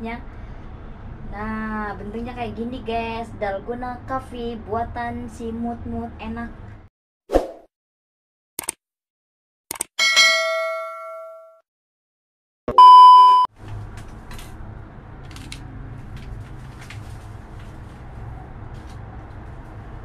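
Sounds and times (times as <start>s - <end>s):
ringing bell ding: 10.0s - 11.6s
test tone beep: 12.7s - 13.5s.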